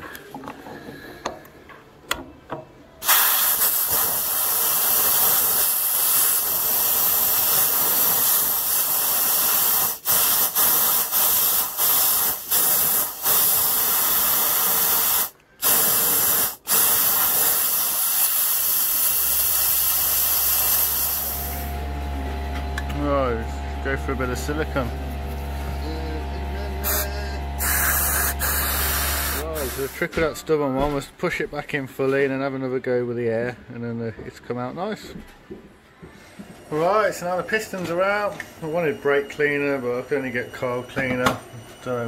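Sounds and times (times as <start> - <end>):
compressed air hissing: 3.0 - 21.8, 23.2 - 30.1.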